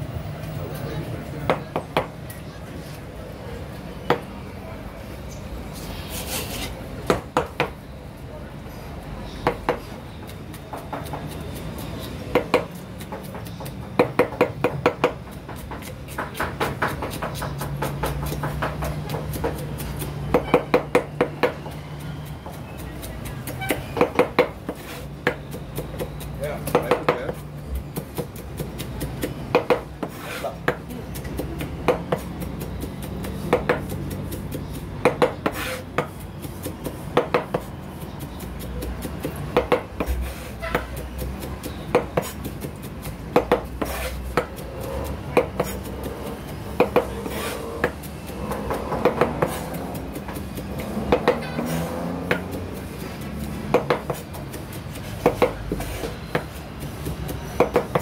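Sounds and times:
knife chopping on plastic board: 10.5s - 21.8s, 23.0s - 37.7s, 38.6s - 44.6s, 45.3s - 52.6s, 53.6s - 58.0s.

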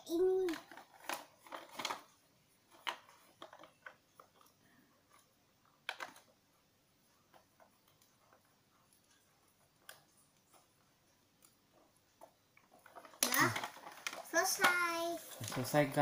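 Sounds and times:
plastic toy parts clattering: 0.1s - 4.5s, 12.6s - 16.0s.

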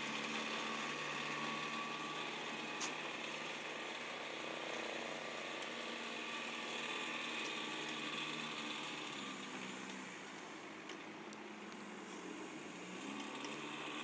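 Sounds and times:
tow tractor engine rattling: 0.0s - 14.0s.

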